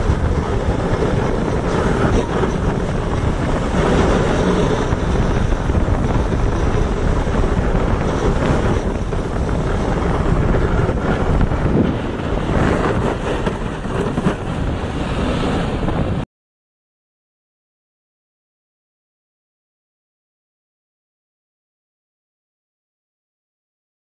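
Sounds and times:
wind buffeting microphone: 0.0s - 16.3s.

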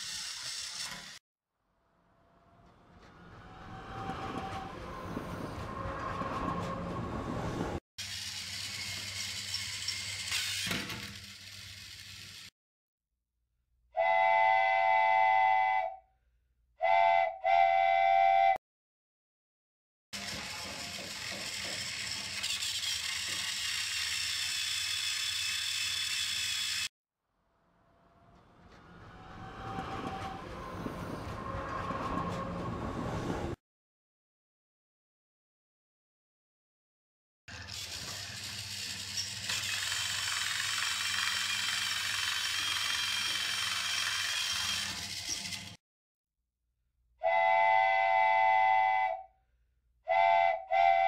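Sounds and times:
rumbling train: 1.8s - 12.5s, 20.2s - 26.8s, 27.6s - 33.6s, 37.5s - 45.8s.

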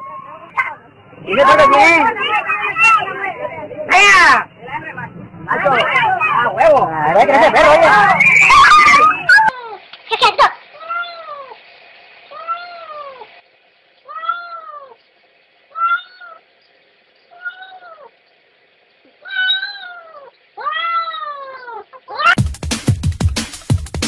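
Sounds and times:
cat meowing: 10.8s - 11.6s, 12.3s - 13.3s, 14.1s - 15.0s, 15.7s - 16.4s, 17.3s - 18.1s, 19.2s - 22.4s.

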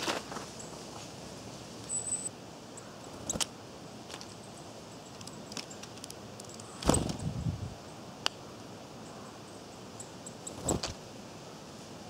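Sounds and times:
rustling in dry leaves: 0.0s - 4.6s
bird chirp: 1.8s - 3.4s, 9.0s - 11.0s.

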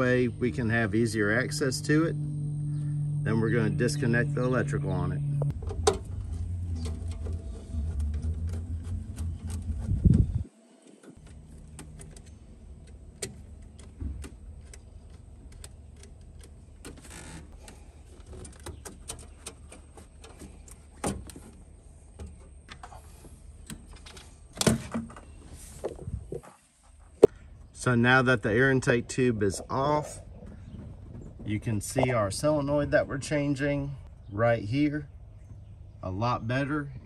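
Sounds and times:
steady low hum: 0.0s - 18.5s.

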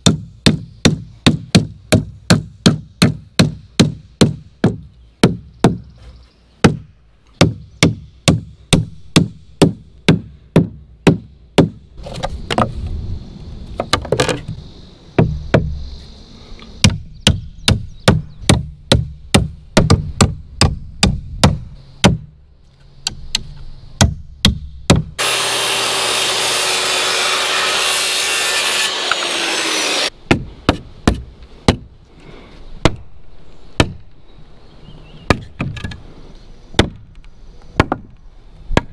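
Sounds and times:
loud steady noise: 25.2s - 30.1s.

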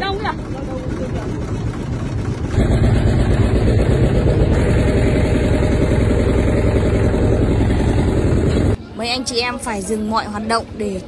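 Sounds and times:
boat engine running: 0.0s - 8.8s.

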